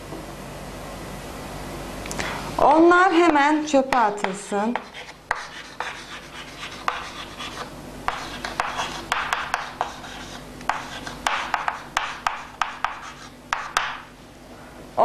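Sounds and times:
chalk tapping on board: 3.9s - 14.1s
chalk scratching on chalkboard: 4.2s - 14.0s.

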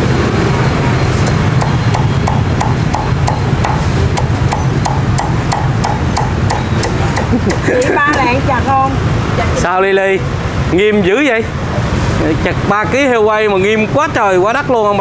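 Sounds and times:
cleaver chopping on wooden board: 1.6s - 8.3s.

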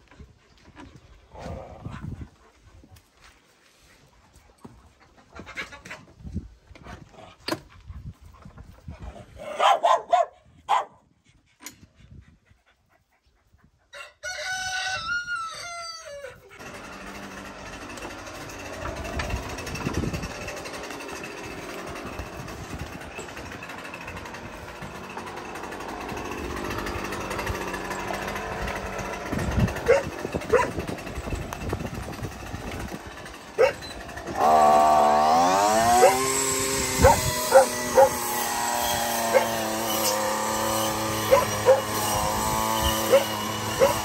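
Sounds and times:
rooster crowing: 14.0s - 16.5s
brushcutter engine running: 16.5s - 44.0s.

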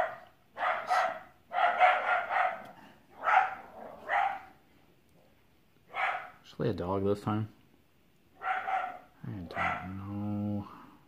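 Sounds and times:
dog barking: 0.0s - 4.6s, 5.9s - 6.4s, 8.4s - 10.0s.

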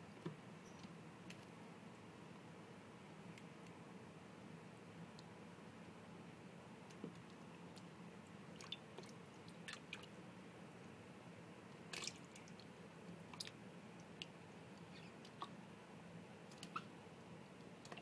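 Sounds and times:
water drips and small splashes: 6.9s - 10.2s, 11.7s - 15.6s, 17.8s - 18.0s.

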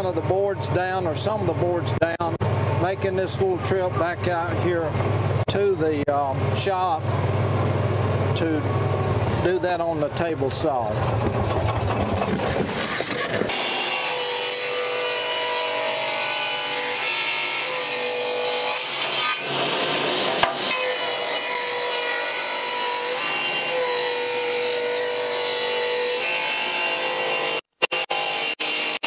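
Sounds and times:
table saw cutting wood: 12.3s - 29.0s.

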